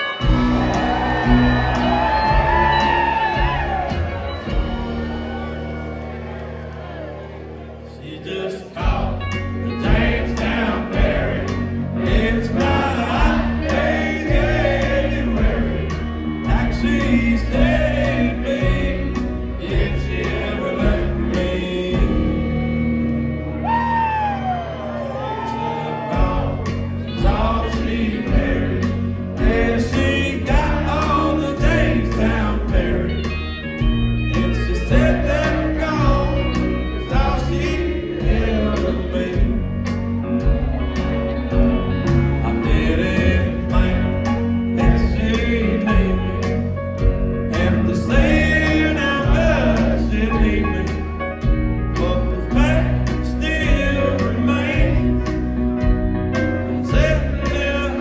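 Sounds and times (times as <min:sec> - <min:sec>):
country band playing live: 0:00.0 - 0:58.0
man singing: 0:08.0 - 0:22.8, 0:25.6 - 0:40.5, 0:41.5 - 0:58.0.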